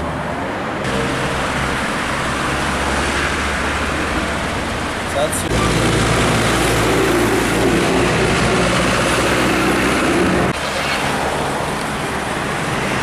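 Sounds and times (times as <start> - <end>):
road traffic noise: 0.0 - 13.0
vehicle engine idling: 0.9 - 10.7.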